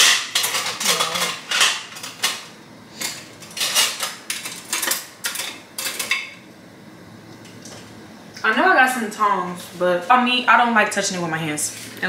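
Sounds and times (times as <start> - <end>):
metal utensils clinking: 0.0 - 6.4.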